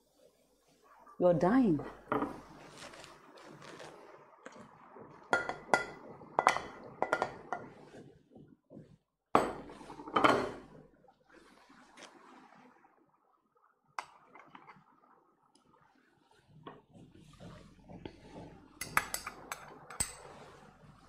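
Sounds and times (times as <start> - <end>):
cookware clinking and clattering: 1.8 - 2.5, 5.3 - 7.8, 9.4 - 10.7, 18.8 - 20.3.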